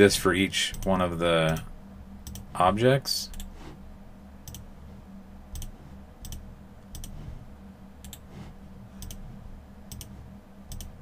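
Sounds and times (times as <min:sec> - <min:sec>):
steady low hum: 0:00.0 - 0:11.0
computer mouse clicking: 0:02.2 - 0:02.5, 0:03.3 - 0:03.5, 0:04.4 - 0:04.7, 0:05.5 - 0:07.2, 0:08.0 - 0:08.3, 0:09.0 - 0:09.2, 0:09.9 - 0:11.0.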